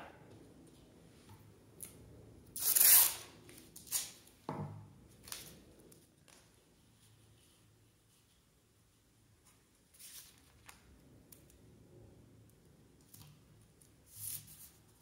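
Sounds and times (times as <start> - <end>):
soft paper brushes: 5.2 - 10.9, 13.1 - 15.0.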